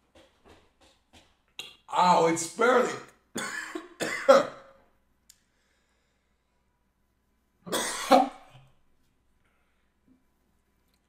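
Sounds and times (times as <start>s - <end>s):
person coughing harshly: 3.4s - 4.7s, 7.7s - 8.6s.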